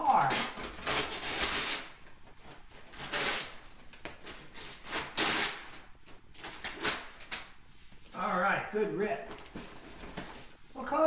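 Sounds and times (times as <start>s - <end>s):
wrapping paper tearing: 0.0s - 2.0s, 2.9s - 3.6s, 4.2s - 7.5s.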